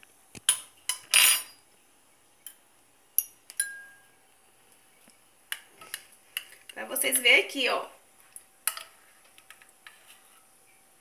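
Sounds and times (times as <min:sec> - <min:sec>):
metal spoon tapping glass dish: 0:03.2 - 0:04.0.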